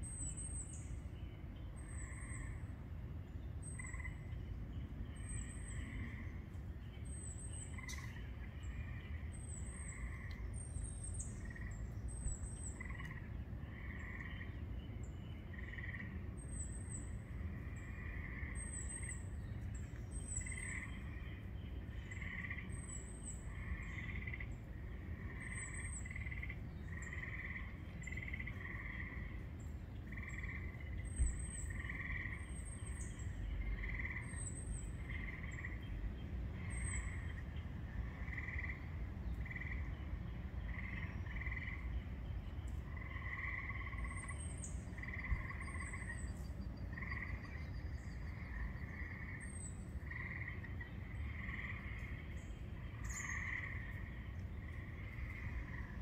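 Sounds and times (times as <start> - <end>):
low steady rumble: 0.0 - 56.0
frogs calling in chorus: 5.2 - 6.4, 7.7 - 10.5, 12.7 - 14.6, 16.9 - 19.4, 20.4 - 35.9, 36.5 - 42.2, 42.8 - 56.0.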